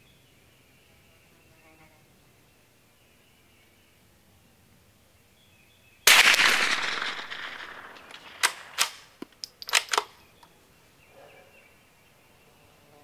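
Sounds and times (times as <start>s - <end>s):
rifle shot echoing: 6.1s - 10.1s
rifle bolt metallic clicks: 6.1s - 10.5s.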